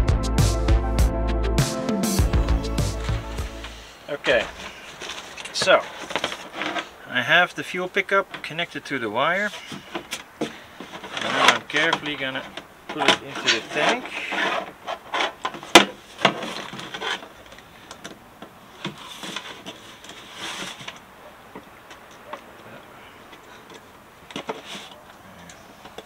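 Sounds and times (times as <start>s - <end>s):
scraping: 2.8s - 7.0s, 9.4s - 17.7s, 18.8s - 21.1s.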